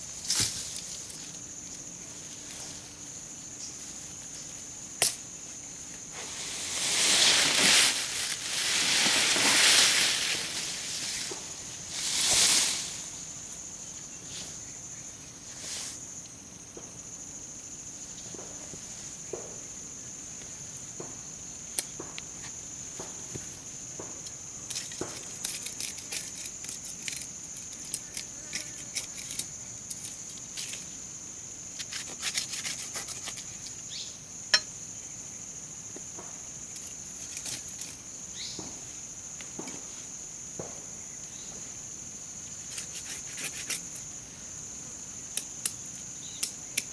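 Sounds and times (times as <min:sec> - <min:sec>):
knife scraping soil: 0:24.7 - 0:30.8, 0:31.8 - 0:33.8, 0:42.6 - 0:44.0.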